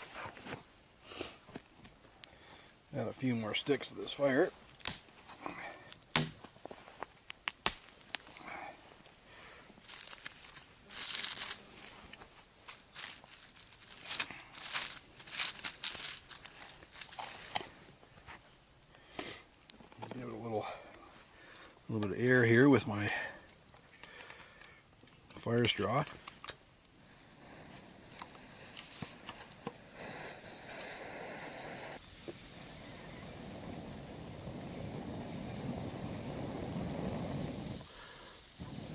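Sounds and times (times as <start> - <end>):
dry crackling rustle: 0.0 - 38.9
dry sticks snapping: 4.7 - 5.1, 5.9 - 6.4, 7.1 - 8.4, 9.8 - 17.7
butter sizzling in skillet: 9.5 - 17.8, 26.7 - 38.9
air blown through fire straw: 27.0 - 38.9.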